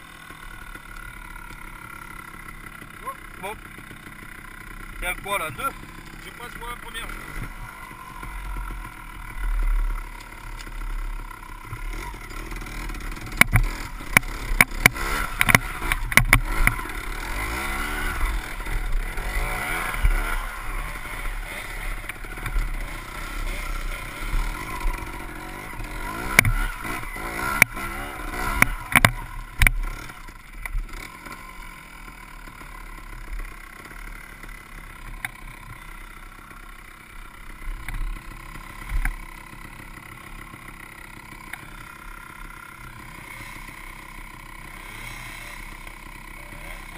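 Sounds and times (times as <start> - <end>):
motorcycle engine at low revs: 0.0 - 46.9
motorcycle knocking over rocks: 3.7 - 31.4.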